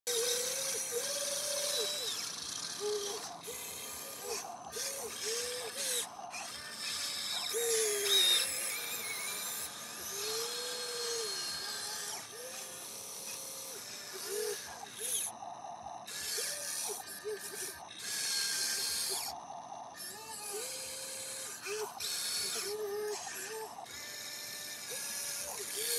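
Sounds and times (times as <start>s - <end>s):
rattly gear chatter: 0.1s - 15.4s
toy excavator motor whine: 0.1s - 25.9s.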